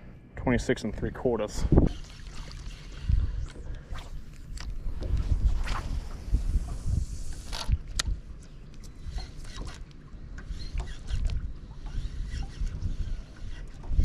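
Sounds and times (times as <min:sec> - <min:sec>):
wind buffeting microphone: 0:01.5 - 0:02.0, 0:02.7 - 0:08.3, 0:10.5 - 0:14.0
fishing reel clicking: 0:10.4 - 0:13.8.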